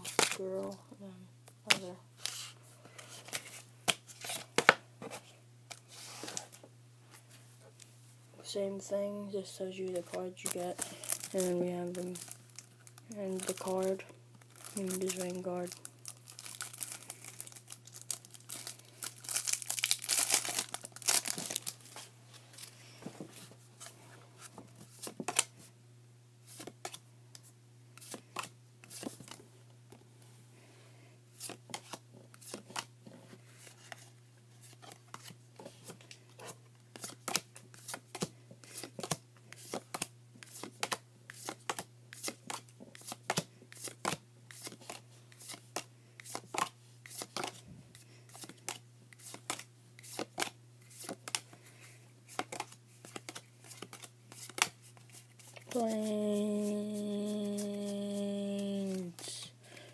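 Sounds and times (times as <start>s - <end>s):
foil wrapper crinkling and tearing: 10.4s - 21.9s
cards clicking and sliding: 36.9s - 47.6s, 48.3s - 51.5s, 52.3s - 56.0s.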